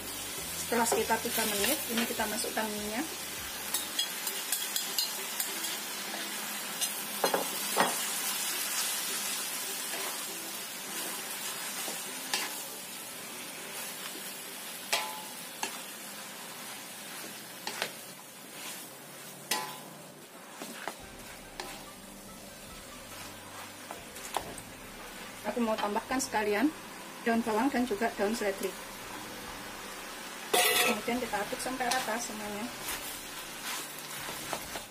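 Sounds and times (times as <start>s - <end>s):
noodles sizzling in a wok: 0.0s - 34.9s
spatula scraping and knocking wok: 14.9s - 15.9s, 16.5s - 26.1s, 30.5s - 34.9s.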